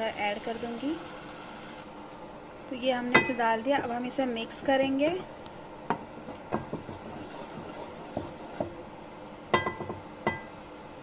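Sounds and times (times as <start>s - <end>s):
wooden spatula stirring thick sauce: 6.3s - 8.7s
spatula knocking against pot: 9.5s - 10.5s.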